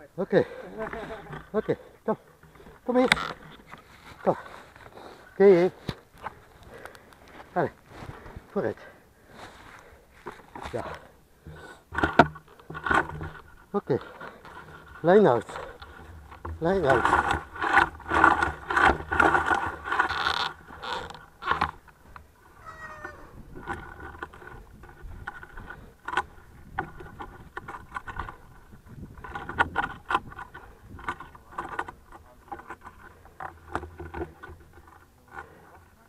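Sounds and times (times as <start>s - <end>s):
gear clicks and rustling: 0.0s - 36.0s.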